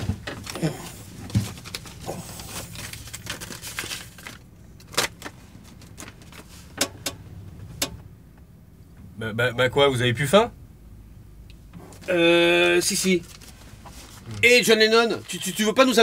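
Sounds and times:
plastic bag rustling: 0.0 - 6.7
van engine hum: 0.0 - 16.0
paper wrapping crinkling: 0.4 - 6.6.

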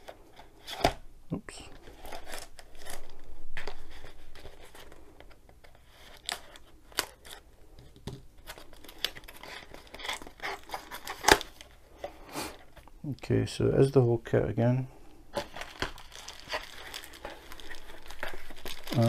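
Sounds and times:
cardboard flaps crinkling: 1.7 - 7.4, 8.0 - 12.8, 15.3 - 19.0.

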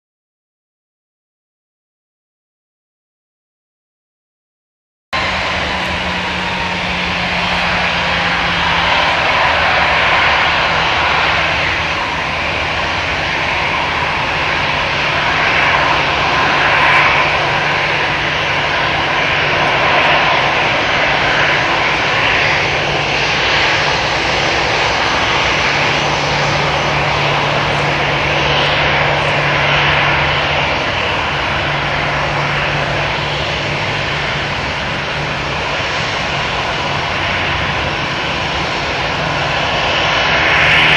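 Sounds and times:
jet engines running: 5.2 - 40.9
low hum: 5.2 - 40.9.

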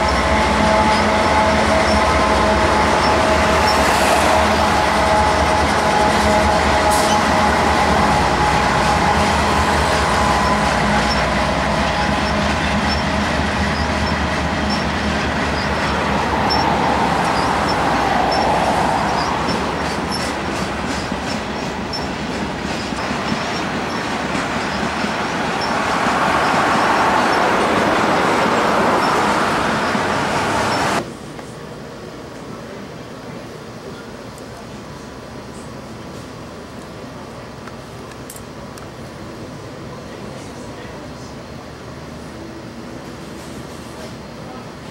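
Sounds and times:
road vehicles passing: 0.0 - 31.1
freight cars rumbling: 0.0 - 31.8
diesel locomotive engine running: 0.0 - 44.9.

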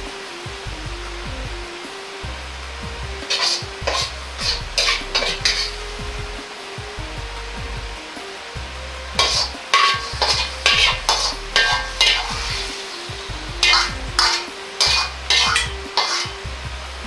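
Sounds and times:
food sizzling over high heat: 0.0 - 17.0
metal ladle scraping wok: 3.2 - 6.1, 9.1 - 16.5.

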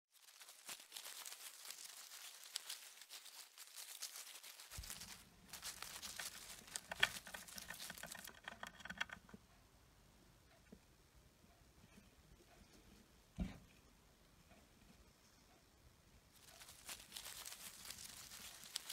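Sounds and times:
hamster digging in wood shavings: 0.1 - 9.2, 16.4 - 18.9.

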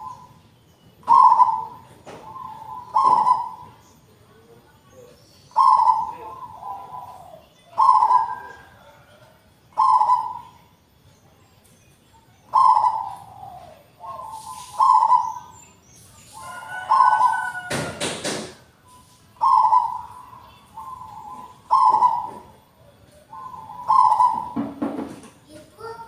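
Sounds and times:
dove cooing: 0.0 - 0.4, 1.0 - 3.8, 5.5 - 10.6, 12.5 - 15.5, 16.4 - 18.5, 19.4 - 25.2.

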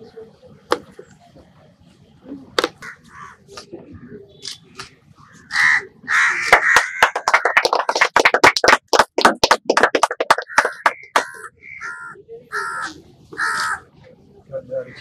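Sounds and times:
crows cawing: 2.8 - 3.5, 5.2 - 7.7, 10.4 - 13.9
people clapping: 6.3 - 11.5.

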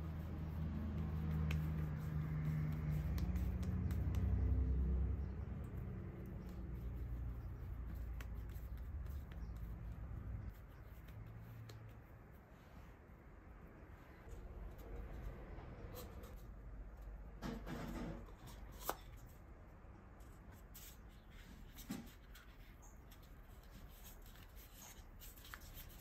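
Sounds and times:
fingers rubbing dough in paper cup: 0.0 - 12.4.

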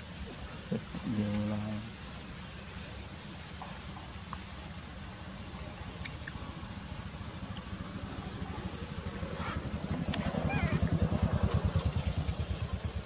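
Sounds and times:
small engine running: 7.2 - 13.0.

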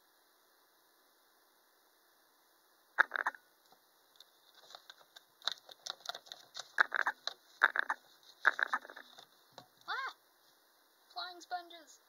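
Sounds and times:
small objects clattering: 4.2 - 9.3.

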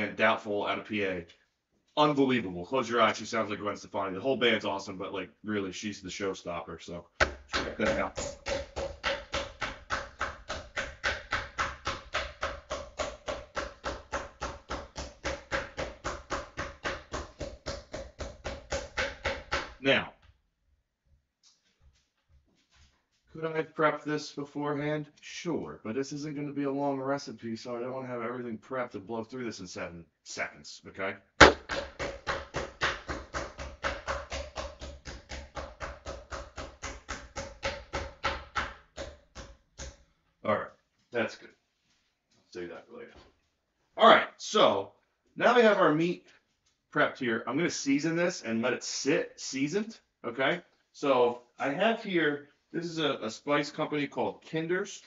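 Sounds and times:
meat mallet pounding on wooden board: 7.2 - 19.8, 31.4 - 40.0.

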